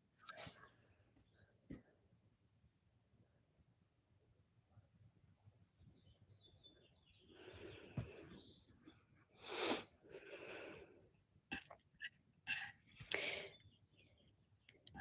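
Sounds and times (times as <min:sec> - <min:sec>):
woman breathing noisily: 0:07.3 - 0:08.4, 0:09.4 - 0:11.0.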